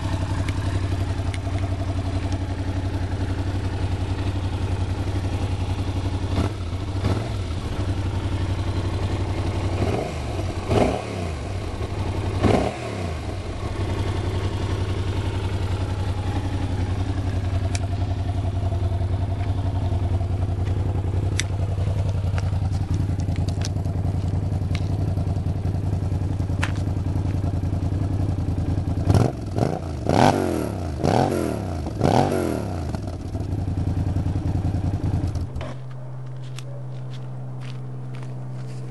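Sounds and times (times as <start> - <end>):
motorcycle engine idling: 0.0 - 38.9
engine revving: 3.0 - 17.9, 29.0 - 33.4.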